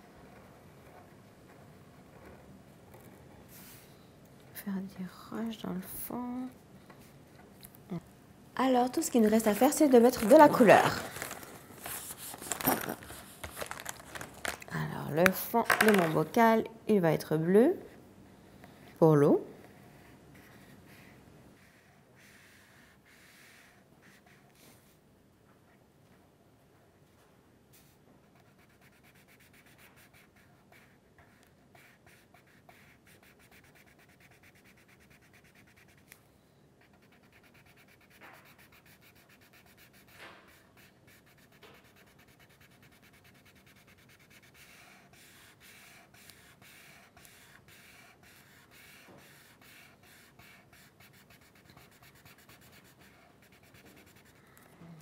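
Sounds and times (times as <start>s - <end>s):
marker scratching on paper: 9.3s - 13.8s, 15.2s - 16.2s, 19.7s - 24.9s, 27.8s - 36.1s, 36.8s - 54.4s.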